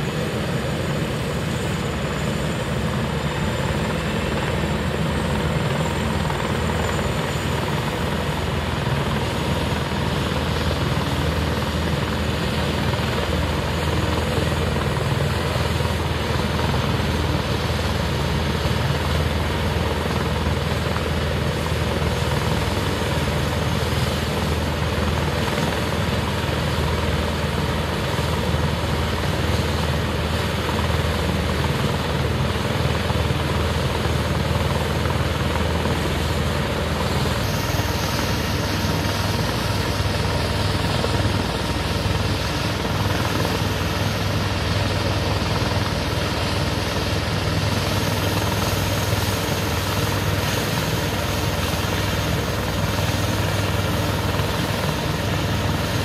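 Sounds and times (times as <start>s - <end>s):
helicopter engine and rotor drone: 0.0s - 56.0s
faint high whine: 36.4s - 56.0s.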